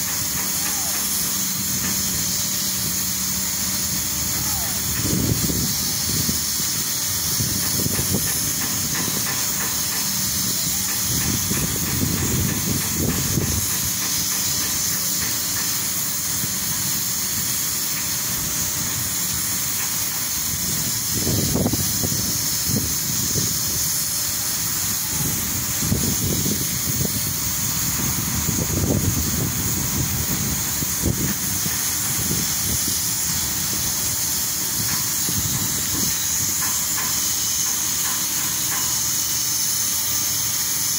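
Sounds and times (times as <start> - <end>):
steady high hiss: 0.0 - 40.9
wind buffeting microphone: 4.8 - 14.0, 20.4 - 24.0, 24.8 - 36.8.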